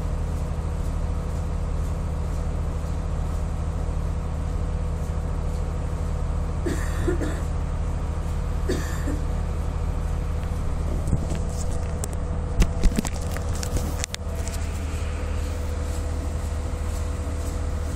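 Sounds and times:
train rumble and hum: 0.0 - 17.9
sharp clicks and rattles: 10.3 - 14.8.

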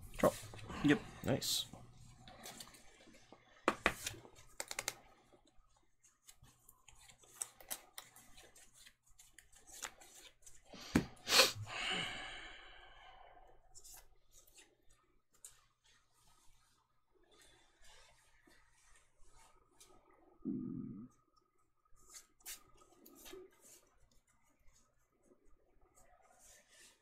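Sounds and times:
cards being shuffled: 3.7 - 5.0, 6.2 - 11.1.

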